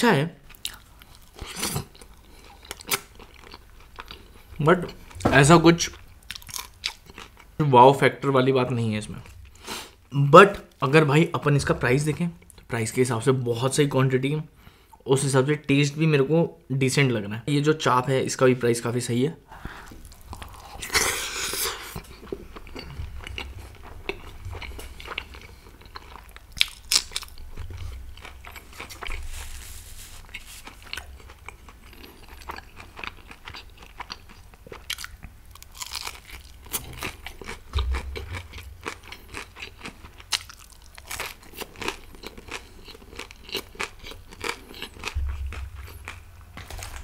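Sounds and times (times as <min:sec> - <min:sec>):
person chewing food: 0:00.5 - 0:05.3, 0:05.9 - 0:07.5, 0:19.6 - 0:47.0.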